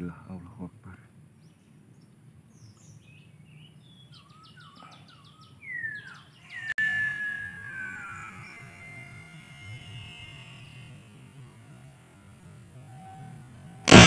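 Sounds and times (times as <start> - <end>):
small birds chirping: 0.0 - 14.0
long falling whistle: 6.5 - 11.7.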